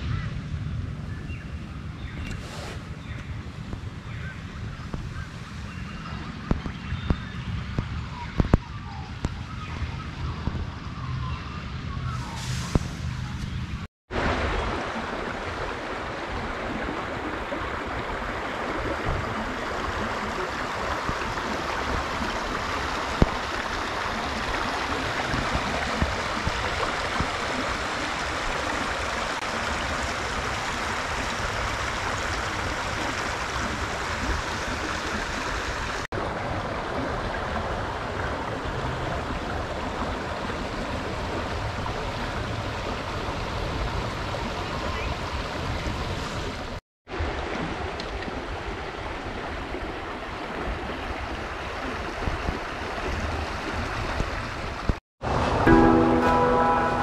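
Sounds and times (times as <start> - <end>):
creek water babbling over stones: 14.1 - 46.2.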